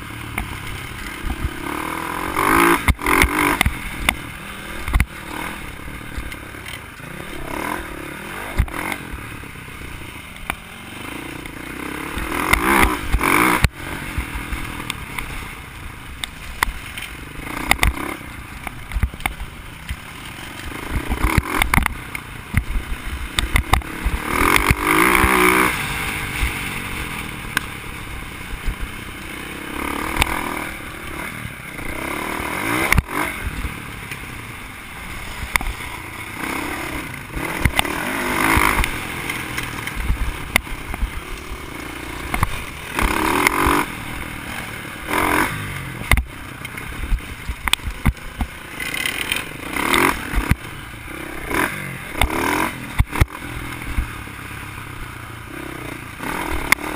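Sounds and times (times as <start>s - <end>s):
bike rattling and knocking: 0.0s - 7.5s, 16.0s - 34.4s, 35.2s - 54.1s
dirt bike engine revving: 0.0s - 56.9s.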